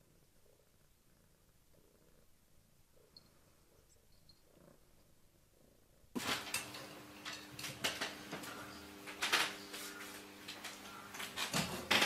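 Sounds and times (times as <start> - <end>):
cat purring: 0.0 - 6.2.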